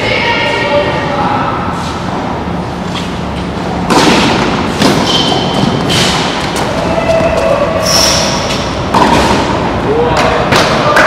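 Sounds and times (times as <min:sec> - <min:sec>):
tennis balls struck with rackets: 0:03.8 - 0:06.8, 0:08.5 - 0:11.0
tennis shoes squeaking on court: 0:04.3 - 0:09.4.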